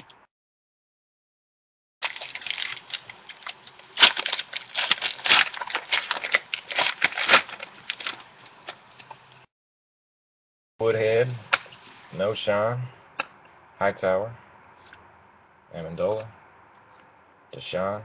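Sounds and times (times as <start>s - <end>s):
foil wrapper crinkling and tearing: 2.0s - 9.1s.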